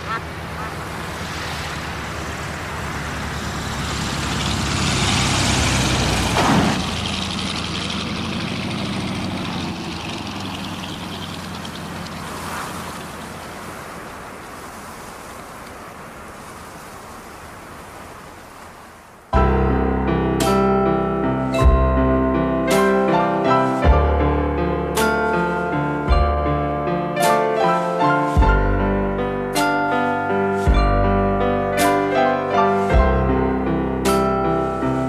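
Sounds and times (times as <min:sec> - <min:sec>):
propeller plane engine: 0:00.0 - 0:16.4.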